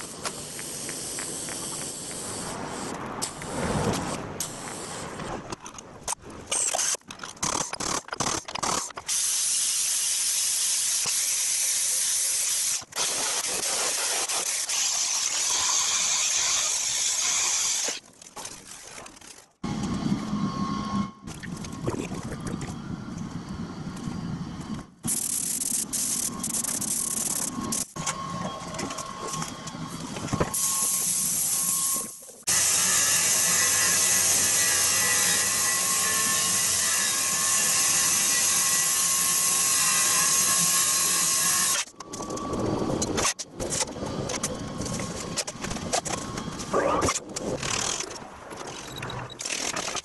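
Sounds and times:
power tools cutting steel: 9.1s - 18.0s, 30.6s - 41.9s.

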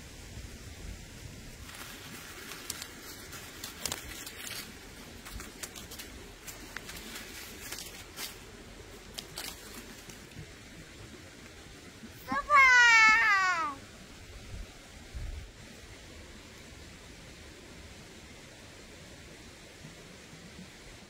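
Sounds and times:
low steady hiss: 0.0s - 21.0s
crinkling and crackling: 1.6s - 10.6s.

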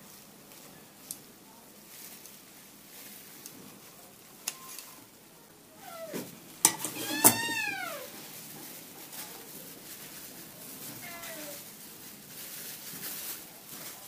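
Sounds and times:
cat meowing: 5.8s - 6.2s, 6.9s - 8.2s, 11.0s - 11.6s.

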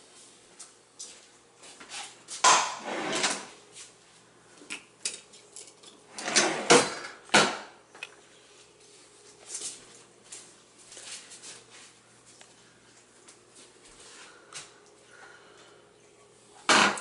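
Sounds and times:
wooden drawer sliding: 2.8s - 3.5s, 6.2s - 7.0s
knives and utensils rattling: 5.0s - 6.0s.

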